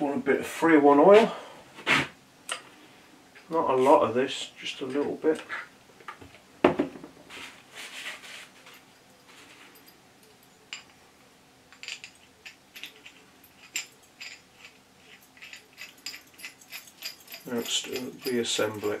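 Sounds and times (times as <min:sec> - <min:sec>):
hand rubbing metal shaft: 0:11.8 - 0:19.0.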